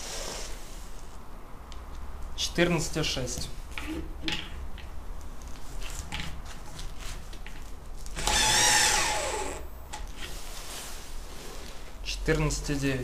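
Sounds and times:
faint clicks and handling noise: 1.0s - 2.4s, 3.2s - 8.2s
cordless drill driving a screw: 8.2s - 9.7s.

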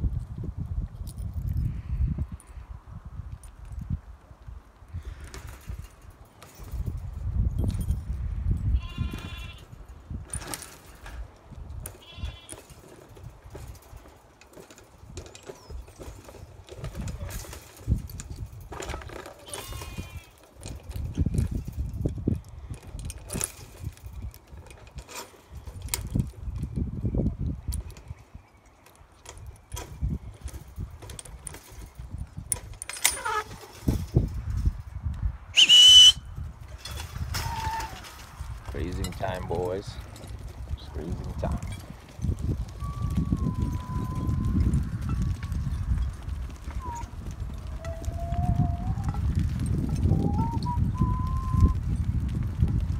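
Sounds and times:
sheep shuffling on dirt: 3.5s - 35.4s, 36.4s - 52.9s
person whistling shrilly: 35.6s - 36.3s, 42.8s - 44.5s, 50.2s - 51.8s.

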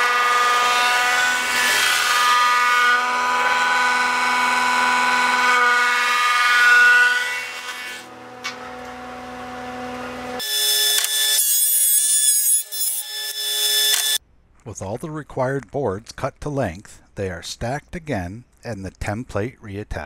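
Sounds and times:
saw cutting wooden board: 0.0s - 14.2s
table saw whining: 0.0s - 14.2s.

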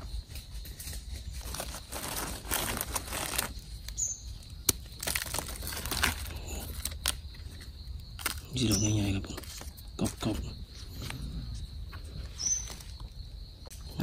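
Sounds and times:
dry leaves and twigs rustling: 0.0s - 14.0s
twigs snapping: 1.4s - 10.4s.

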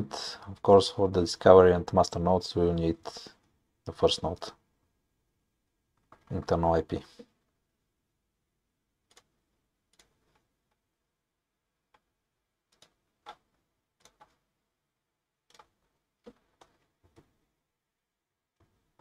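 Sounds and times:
computer mouse and keyboard clicks: 9.1s - 10.5s, 12.7s - 14.4s, 15.4s - 17.3s.

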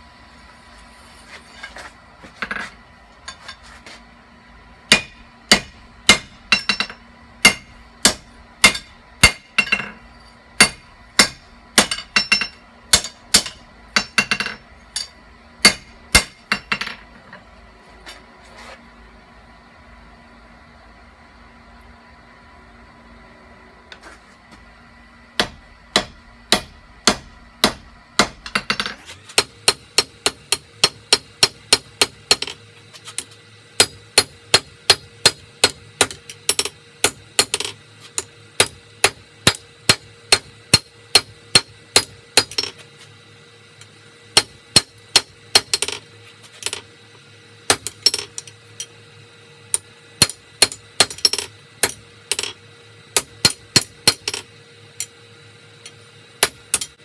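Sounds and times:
low steady hum: 0.0s - 57.0s
hammer striking steel on anvil: 4.9s - 10.0s, 10.6s - 17.0s, 25.4s - 42.8s, 44.4s - 46.0s, 47.7s - 48.9s, 49.7s - 52.6s, 53.2s - 55.1s, 56.4s - 57.0s.

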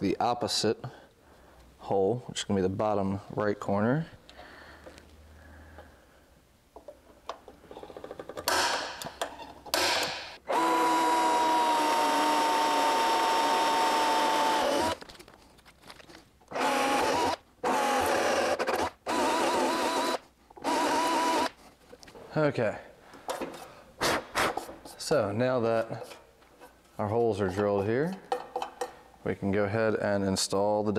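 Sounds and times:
cordless drill boring: 9.8s - 15.0s, 16.5s - 21.5s.

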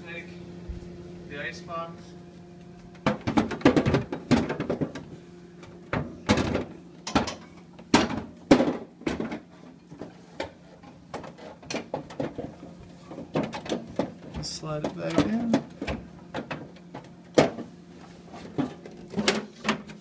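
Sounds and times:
plastic ice bin knocks and clatters: 3.0s - 5.0s, 7.9s - 10.1s.

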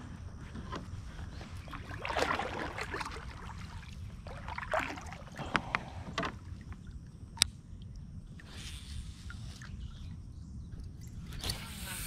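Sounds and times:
paddle splashing in water: 1.4s - 6.7s.

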